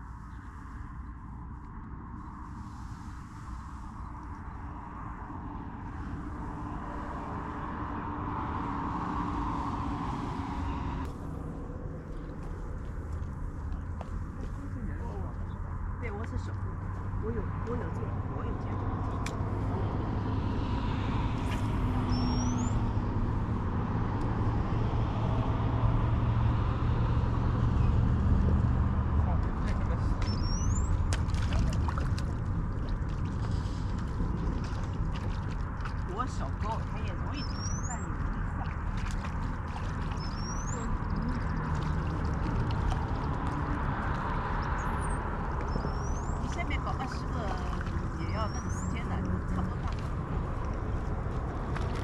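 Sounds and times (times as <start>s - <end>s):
distant road traffic rumble: 0.0s - 52.0s
wind noise on microphone: 0.0s - 52.0s
bird rising whistle: 22.0s - 22.8s.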